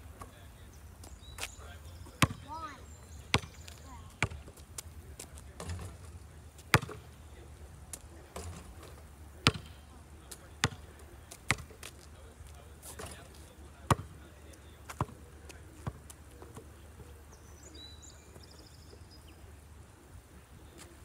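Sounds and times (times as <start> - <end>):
basketball bouncing on asphalt: 1.4 - 7.2, 7.9 - 16.8.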